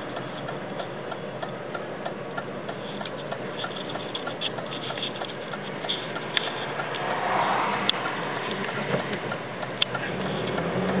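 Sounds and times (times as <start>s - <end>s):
car cabin noise: 0.0s - 11.0s
turn signal indicator ticking: 0.0s - 11.0s.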